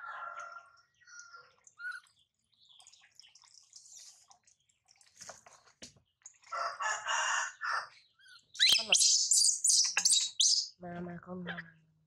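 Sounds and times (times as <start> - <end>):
water trickling into tub: 1.2 - 6.6
faint bird chirps: 7.6 - 10.8.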